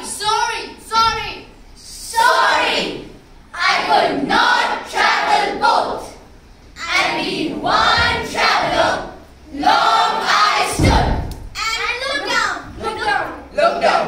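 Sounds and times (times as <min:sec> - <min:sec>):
children reciting in unison: 0:01.8 - 0:11.3.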